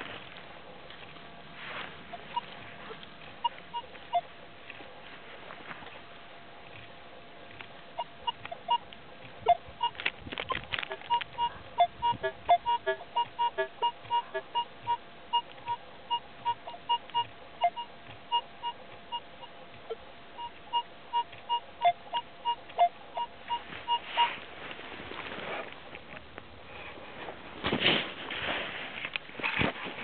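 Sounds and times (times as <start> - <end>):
rustling in grass: 0.0 - 6.9, 23.5 - 30.0
metal detector beeping: 2.0 - 4.3, 8.0 - 24.4.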